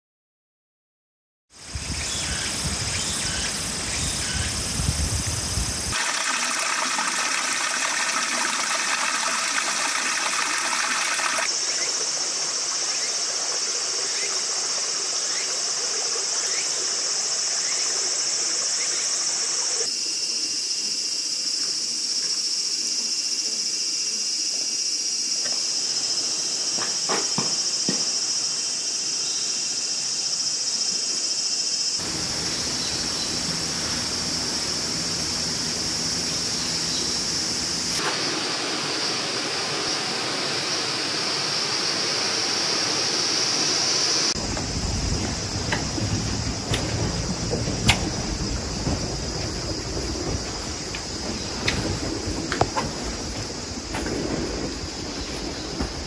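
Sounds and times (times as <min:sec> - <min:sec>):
high-pitched insect chorus: 0:01.5 - 0:56.0
running water: 0:01.6 - 0:19.6, 0:32.0 - 0:56.0.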